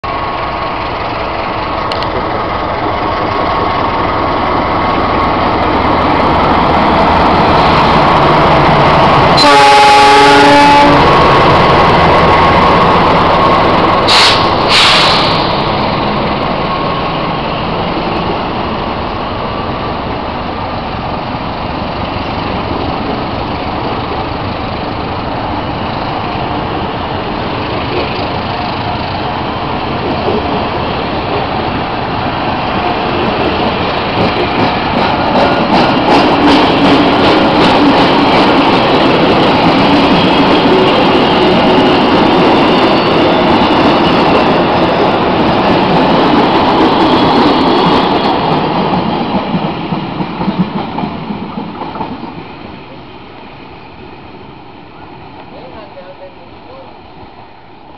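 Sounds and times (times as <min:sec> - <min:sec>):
wheels rumbling on rail: 0:00.0 - 0:57.9
locomotive engine passing: 0:00.1 - 0:53.0
train horn: 0:09.4 - 0:11.2.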